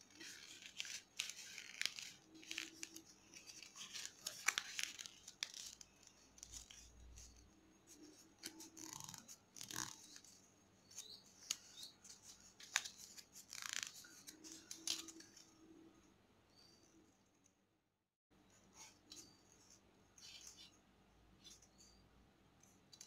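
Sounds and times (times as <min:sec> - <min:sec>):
paper crinkling while folded: 0:00.0 - 0:10.3, 0:11.0 - 0:15.5.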